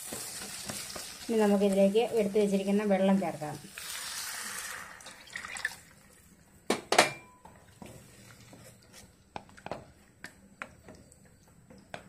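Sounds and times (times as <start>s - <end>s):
wooden spatula scraping a pan: 7.8s - 9.8s.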